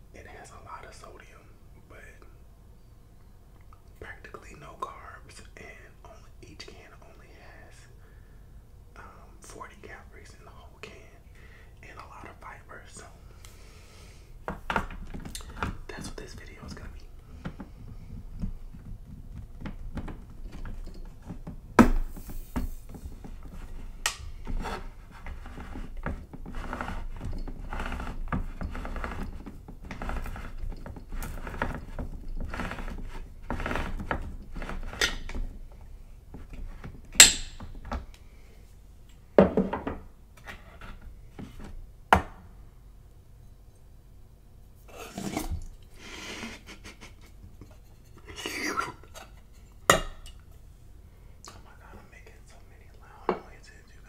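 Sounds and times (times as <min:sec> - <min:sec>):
can opener rasping: 0:25.4 - 0:35.4.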